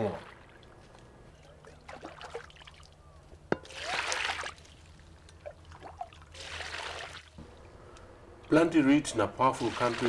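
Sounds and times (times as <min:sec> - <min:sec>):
water splashing and pouring: 0:03.6 - 0:07.4, 0:09.5 - 0:10.0.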